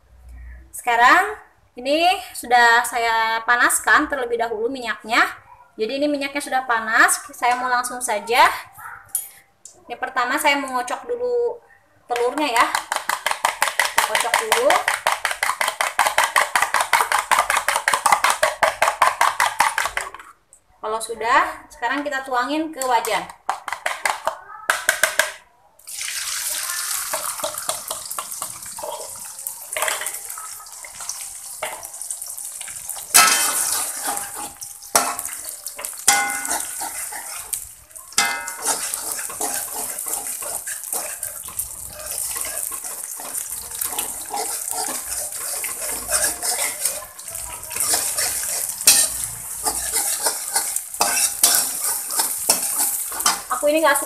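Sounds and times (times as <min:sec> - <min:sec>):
eggs sizzling in hot oil: 0:12.1 - 0:20.2, 0:23.4 - 0:54.0
metal spoon scraping a wok: 0:31.0 - 0:53.6.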